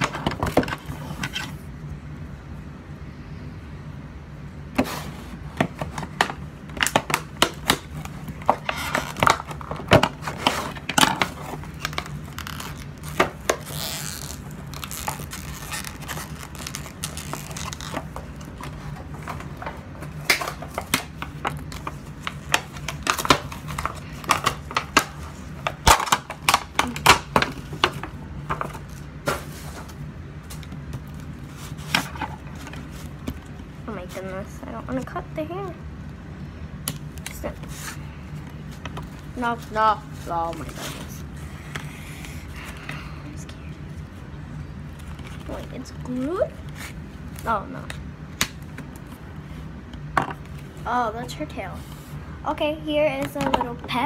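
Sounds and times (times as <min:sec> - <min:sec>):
plastic packaging crinkling and tearing: 0:06.8 - 0:19.4, 0:20.2 - 0:29.8.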